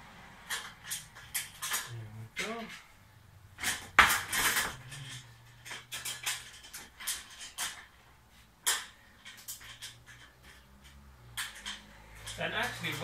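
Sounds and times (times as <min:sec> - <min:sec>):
metal clicks and knocks: 0:00.4 - 0:13.0
metal pieces clattering and scraping: 0:03.6 - 0:08.0, 0:08.6 - 0:13.0.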